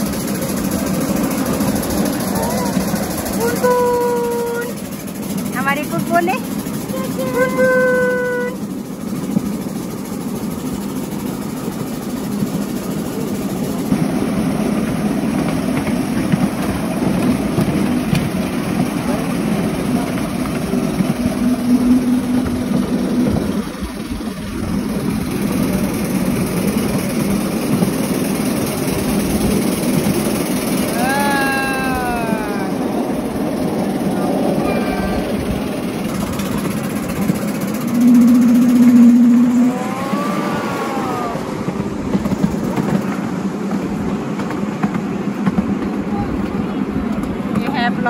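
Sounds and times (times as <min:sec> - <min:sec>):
miniature train rumbling: 0:00.0 - 0:48.0
brief hum: 0:37.4 - 0:41.4.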